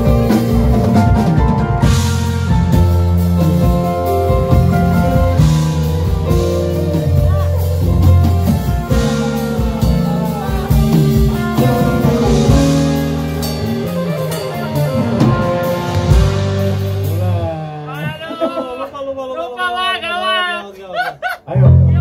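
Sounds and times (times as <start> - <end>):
band playing a song: 0.0 - 18.6
person singing: 4.7 - 15.8.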